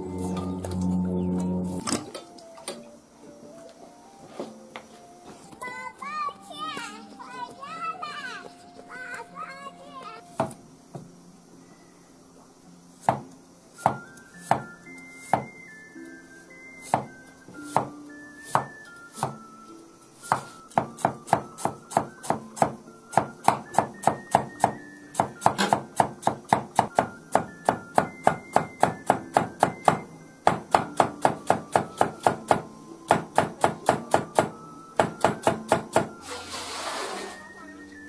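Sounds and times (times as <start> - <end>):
cleaver chopping on wooden board: 10.4 - 10.6, 13.0 - 14.7, 15.3 - 15.5, 16.9 - 17.1, 17.7 - 19.4, 20.3 - 36.1.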